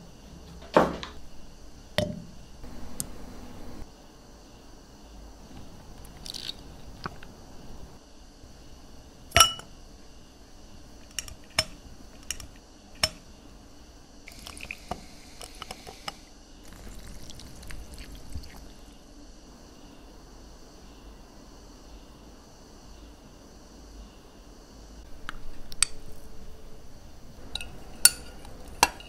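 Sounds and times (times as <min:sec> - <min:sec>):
ice clinking against glass: 0:09.4 - 0:09.7
liquid fizzing over ice: 0:14.3 - 0:15.6, 0:16.6 - 0:18.9.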